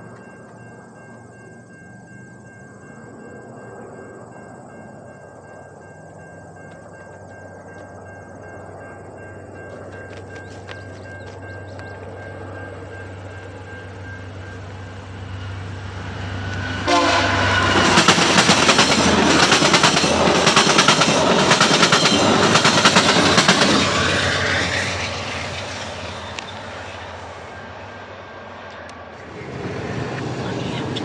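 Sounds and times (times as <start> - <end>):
train wheels clattering over rail joints: 9.6 - 12.5, 17.6 - 26.8
train horn: 16.2 - 19.1.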